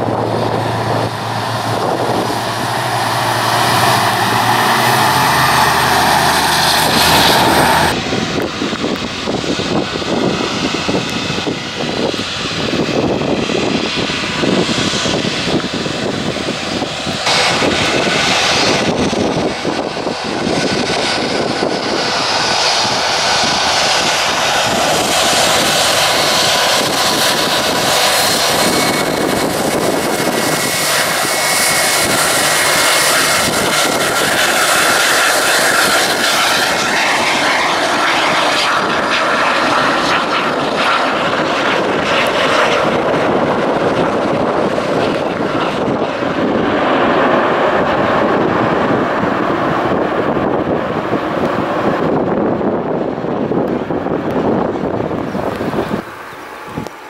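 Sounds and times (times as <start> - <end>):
high whine: 0.0 - 57.0
jet engines at takeoff: 0.0 - 57.0.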